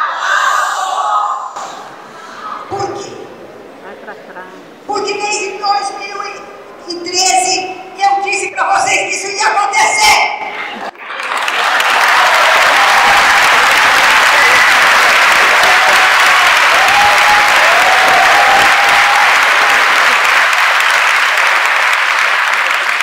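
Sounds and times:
audience applauding: 10.9s - 23.0s.

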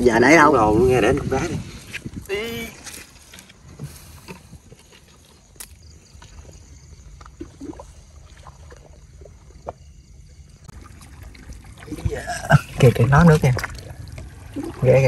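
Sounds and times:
low rumble of sea: 0.0s - 15.0s
water trickling: 0.1s - 15.0s.

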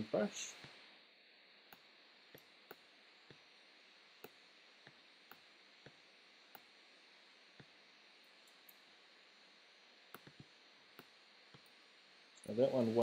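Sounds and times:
computer mouse clicking: 10.1s - 11.7s.

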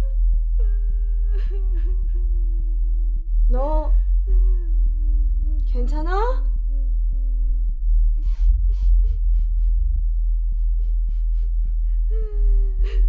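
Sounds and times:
falling moaning tone: 0.0s - 9.8s, 10.6s - 13.0s
deep steady drone: 0.0s - 13.0s.

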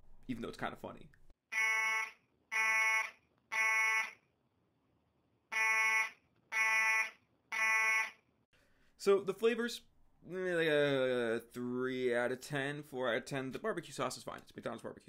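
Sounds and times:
fire alarm buzzy beeps: 1.5s - 4.2s, 5.5s - 8.3s.

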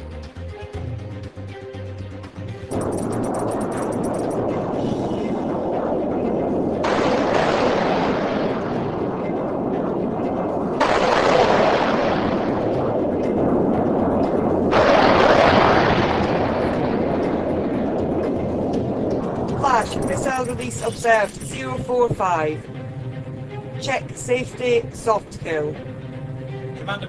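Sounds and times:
missile launch rocket rush: 2.7s - 9.4s, 10.0s - 13.8s, 14.5s - 17.8s
jet aircraft rumbling: 2.7s - 27.0s.

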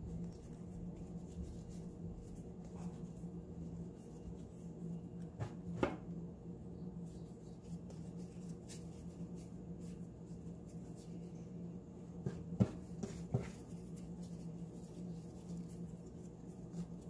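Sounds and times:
steady low hum: 0.0s - 17.0s
dough patting on counter: 12.2s - 13.6s.

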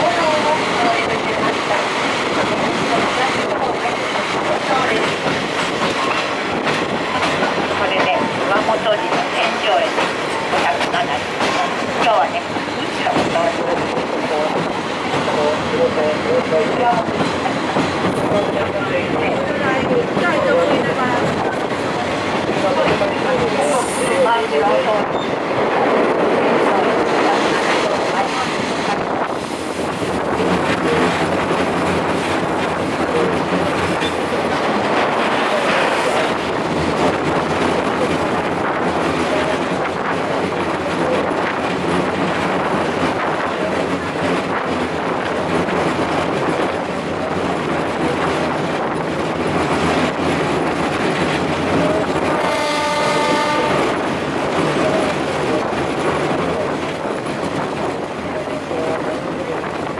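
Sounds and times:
train wheels clattering on rails: 0.0s - 59.9s
train horn: 52.2s - 53.9s.

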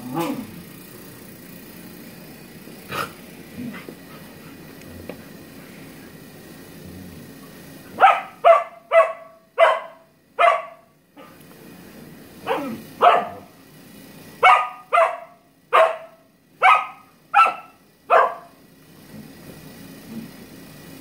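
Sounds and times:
dog barking: 8.0s - 11.3s, 12.5s - 13.5s, 14.4s - 18.5s.

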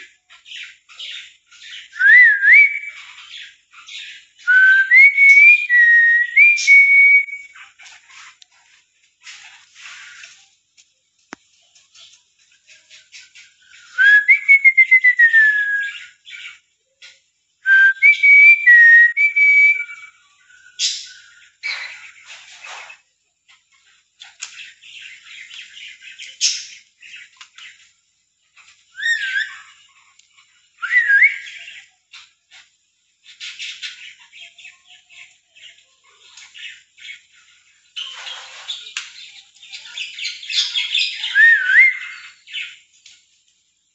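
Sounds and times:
light bird chatter: 0.0s - 43.9s
whistled phrases: 1.9s - 3.0s, 4.4s - 7.6s, 13.9s - 16.2s, 17.6s - 20.2s, 30.8s - 31.6s, 41.2s - 42.4s.

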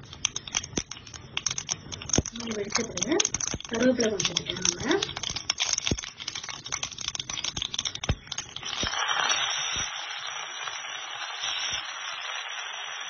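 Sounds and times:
seeds popping in hot oil: 0.0s - 13.0s
leaves sizzling in oil: 8.0s - 13.0s.

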